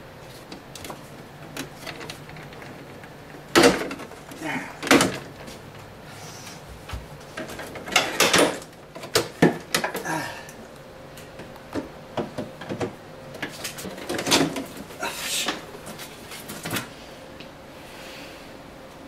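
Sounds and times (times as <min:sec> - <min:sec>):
plastic and bottles clunking: 0:00.3 - 0:05.6, 0:06.8 - 0:10.3, 0:11.4 - 0:16.9.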